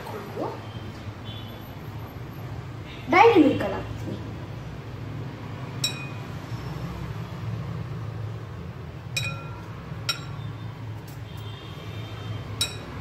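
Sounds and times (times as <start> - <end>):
spoon clinking against glass bowl: 5.8 - 6.2, 9.1 - 10.5, 12.6 - 13.0.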